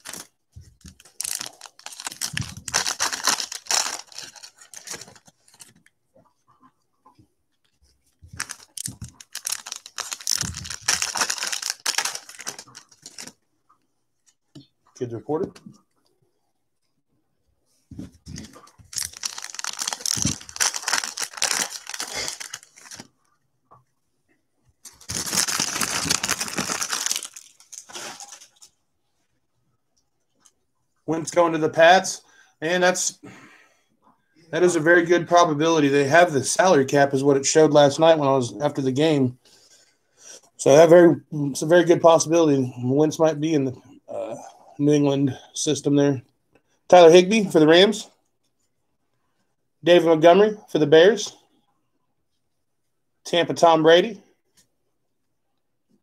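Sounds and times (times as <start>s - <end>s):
plastic wrapper crinkling and tearing: 0.0s - 0.3s, 0.9s - 5.9s, 8.3s - 13.4s, 18.3s - 23.1s, 24.8s - 28.7s
cards rustling and sliding: 18.0s - 23.1s.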